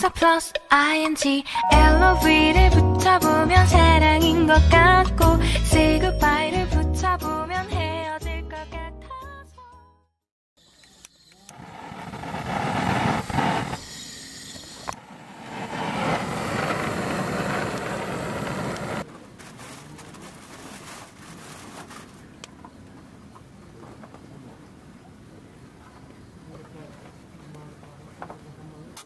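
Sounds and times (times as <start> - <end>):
blowtorch click: 10.8 - 19.0
blowtorch flame hissing: 10.8 - 19.0
wood fire crackling: 11.5 - 13.8, 14.9 - 19.0.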